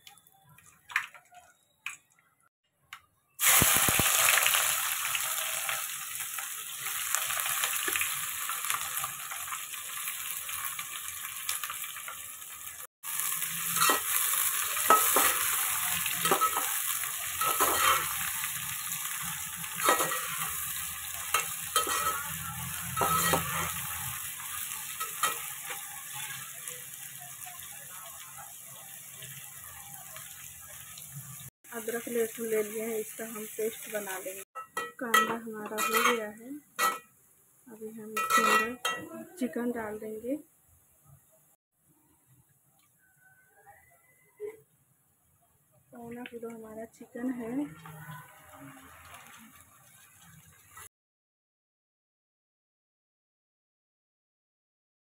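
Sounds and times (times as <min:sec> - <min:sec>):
onions sizzling in hot oil: 0:03.4 - 0:40.3, 0:46.0 - 0:50.9
metal spatula scraping pot: 0:13.6 - 0:16.8, 0:17.4 - 0:26.4, 0:34.6 - 0:37.1, 0:38.2 - 0:39.3.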